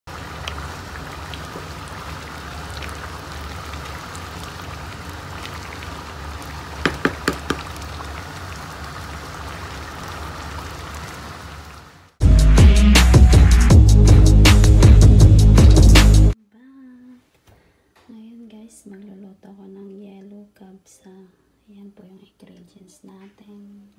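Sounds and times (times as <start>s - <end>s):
pot of food simmering and bubbling: 0.1s - 12.1s
wooden spoon knocking on metal pot: 6.8s - 7.7s.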